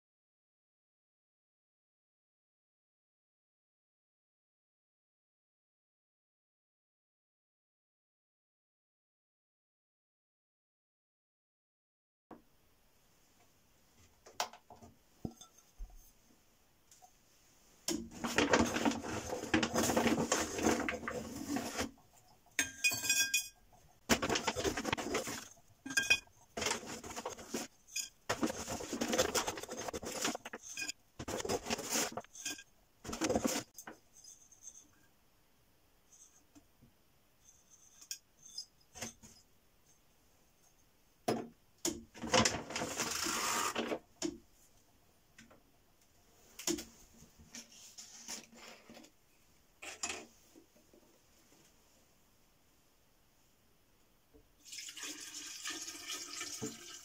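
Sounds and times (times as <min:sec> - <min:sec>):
powder rustling and sliding: 0:18.1 - 0:22.0, 0:24.1 - 0:25.6, 0:26.6 - 0:32.5
clinks against glass: 0:22.6 - 0:23.6.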